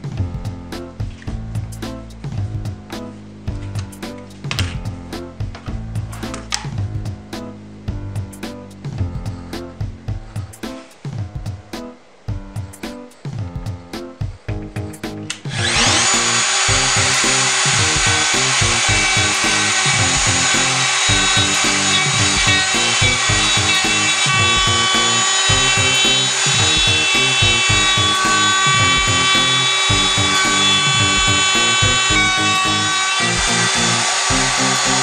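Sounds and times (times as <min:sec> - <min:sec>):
router whining while cutting wood: 0:15.5 - 0:35.0.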